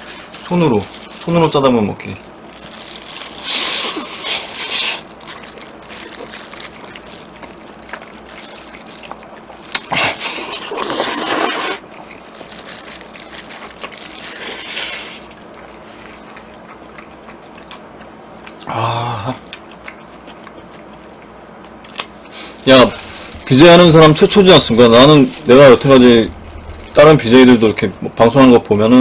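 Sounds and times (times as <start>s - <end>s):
wet slurping and chewing noodles: 2.7s - 18.7s.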